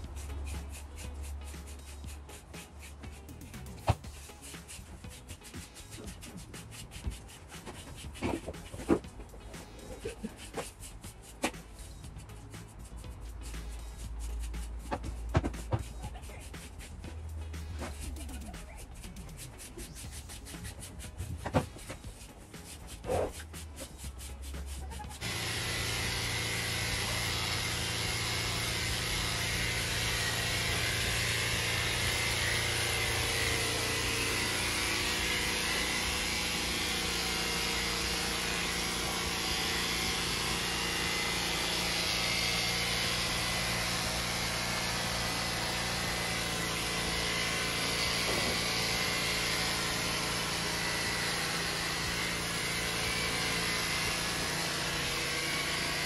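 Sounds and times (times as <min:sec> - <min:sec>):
electric clippers buzzing: 0:25.1 - 0:56.0.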